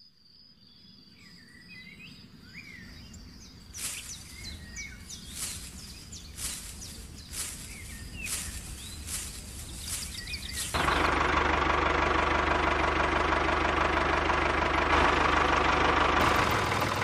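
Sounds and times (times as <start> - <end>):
small birds chirping: 0.3 - 11.3, 16.1 - 17.0.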